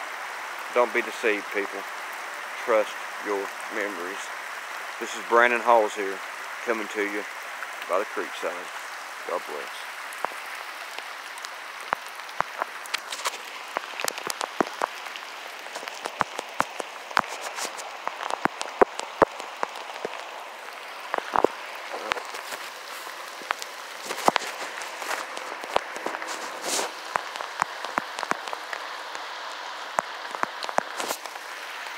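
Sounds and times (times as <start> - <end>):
creek rushing: 0.0 - 31.9
footsteps crunching through dry leaves: 12.6 - 14.9, 15.6 - 18.0, 21.0 - 27.2, 30.9 - 31.4.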